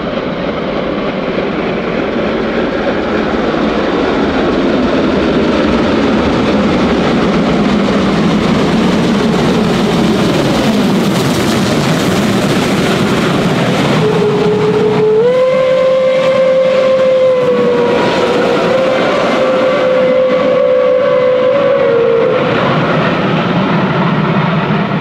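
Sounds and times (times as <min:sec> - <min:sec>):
steam locomotive passing: 0:00.0 - 0:25.0
steam whistle blast: 0:13.9 - 0:22.8.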